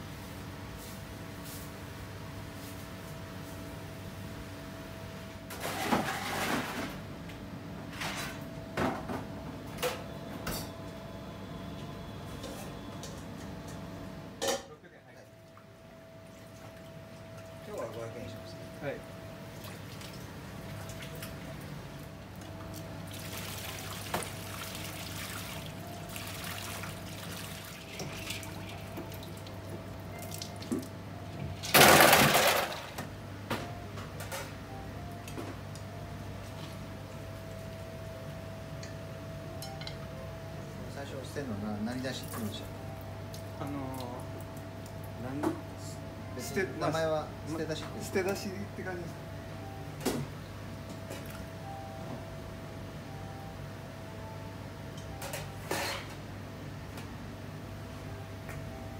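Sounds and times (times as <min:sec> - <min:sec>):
kitchen equipment hum: 0:02.6 - 0:14.7, 0:15.8 - 0:52.3, 0:54.0 - 0:57.0
kitchen items clattering: 0:05.6 - 0:07.0, 0:31.8 - 0:32.9.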